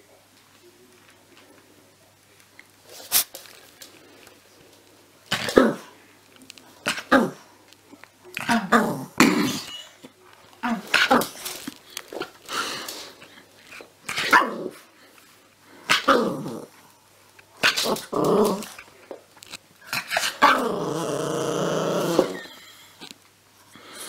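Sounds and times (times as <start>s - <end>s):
puppy growling: 8.3s - 9.8s, 15.9s - 16.9s, 17.6s - 18.9s, 19.8s - 22.6s.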